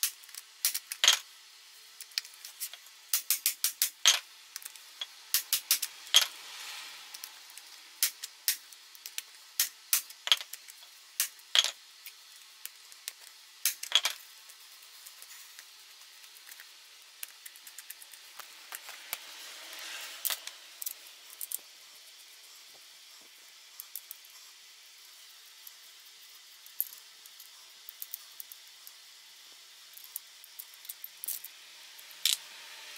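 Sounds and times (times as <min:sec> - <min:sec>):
metal scraping: 0:18.8 - 0:20.9.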